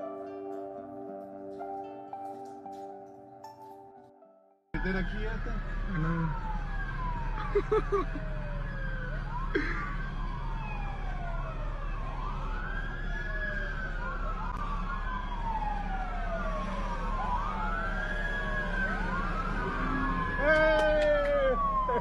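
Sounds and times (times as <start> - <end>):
emergency vehicle sirens wailing: 4.8 - 22.0.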